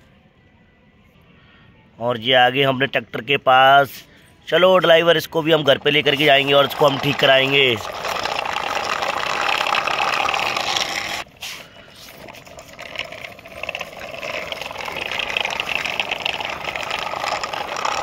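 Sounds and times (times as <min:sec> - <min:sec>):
toy metal tractor rolling on concrete: 0:05.6 - 0:11.3, 0:11.9 - 0:18.0.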